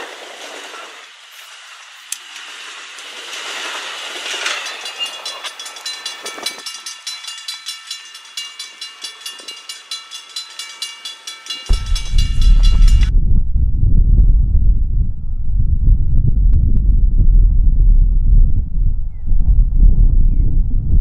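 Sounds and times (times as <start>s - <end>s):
passenger train passing: 2.2s - 13.1s
grade crossing bell ringing: 3.2s - 13.1s.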